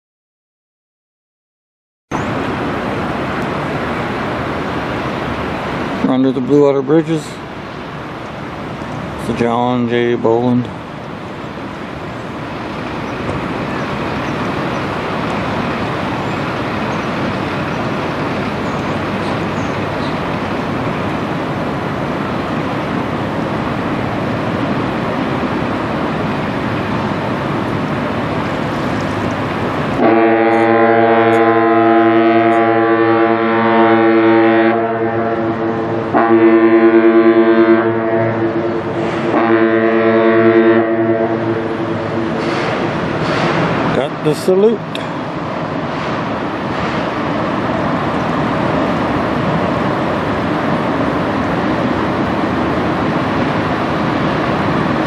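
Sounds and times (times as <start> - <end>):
steady rushing noise: 2.1 - 55.0
ship horn blasts: 29.9 - 43.7.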